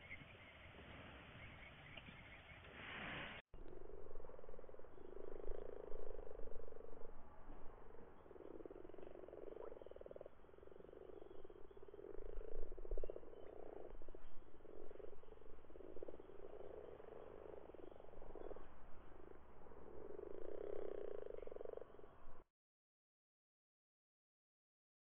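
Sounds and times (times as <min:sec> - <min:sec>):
frogs croaking: 0:03.6 - 0:22.4.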